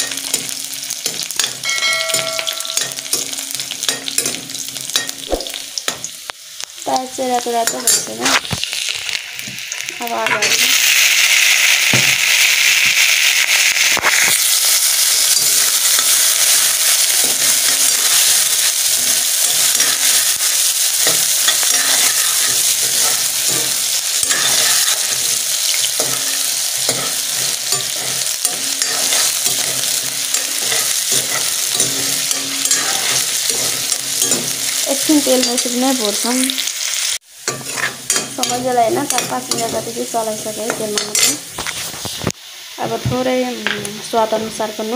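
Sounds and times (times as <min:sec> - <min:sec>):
potatoes sizzling in hot oil: 0:00.0 - 0:44.9
steel ladle scraping a pan: 0:14.0 - 0:36.2, 0:36.9 - 0:40.0, 0:40.6 - 0:42.2.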